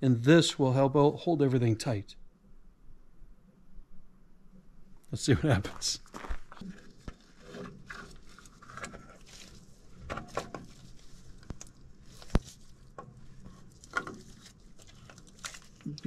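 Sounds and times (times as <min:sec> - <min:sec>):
rubber hose rubbing and scuffing: 0:06.1 - 0:15.9.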